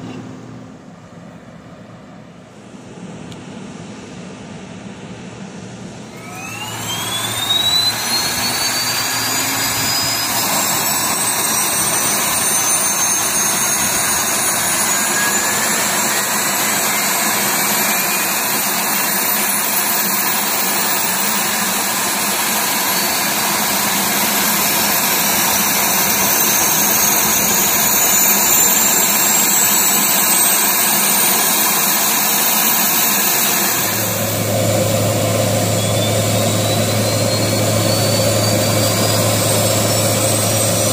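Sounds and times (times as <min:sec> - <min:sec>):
turbine engine whine rising: 0:00.0 - 0:40.9
low hum: 0:31.7 - 0:40.9.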